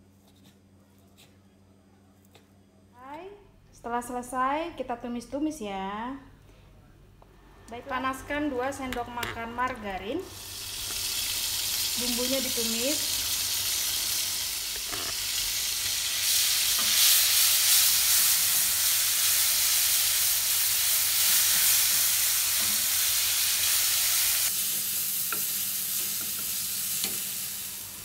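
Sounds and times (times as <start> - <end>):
paste sizzling in a frying pan: 10.3 - 28.0.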